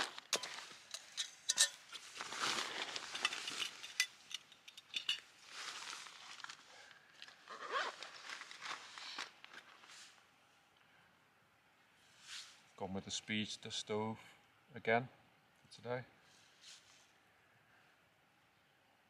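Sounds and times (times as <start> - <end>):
metal cookware clinking: 0.4 - 1.9
bags rustling: 1.9 - 4.0, 5.4 - 9.9.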